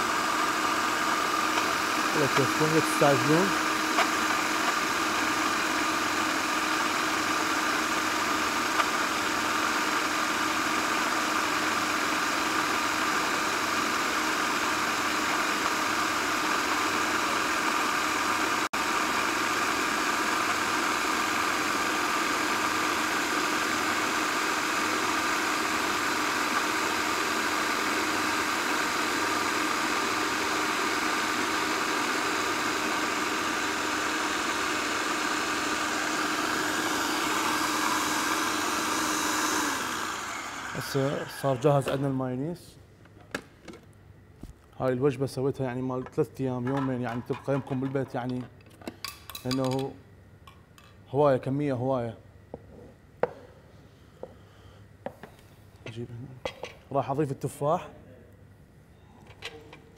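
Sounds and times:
food processor motor whining: 0:00.0 - 0:42.2.

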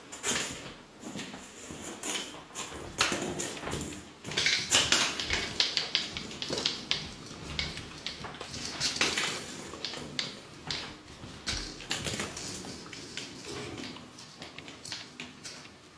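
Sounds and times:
ball rolling on floor: 0:00.2 - 0:15.7
puppy claws clicking on floor: 0:00.2 - 0:15.9.

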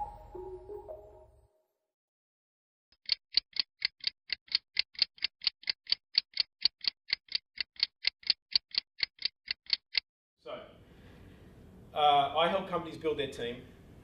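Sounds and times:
clock ticking: 0:03.0 - 0:10.0.

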